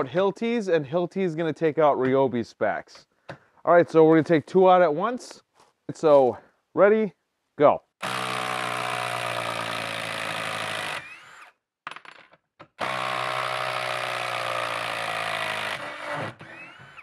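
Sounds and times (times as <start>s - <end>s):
impact driver hammering: 12.8s - 17.0s.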